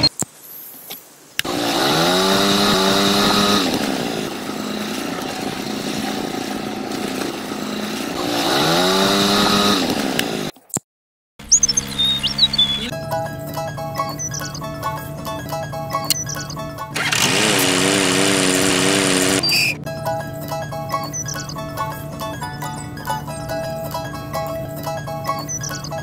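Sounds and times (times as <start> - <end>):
small electric winch motor whining: 1.4 - 10.5, 17.0 - 19.8.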